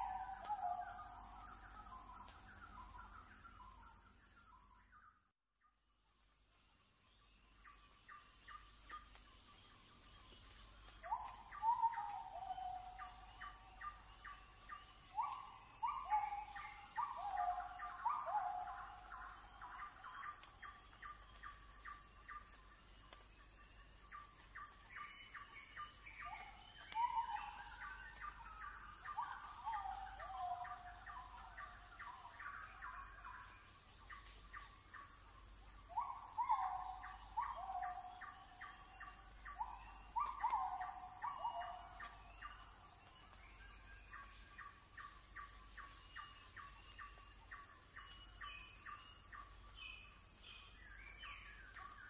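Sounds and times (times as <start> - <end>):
faint high insect drone: 0.0 - 52.0
birds calling and chirping: 7.5 - 52.0.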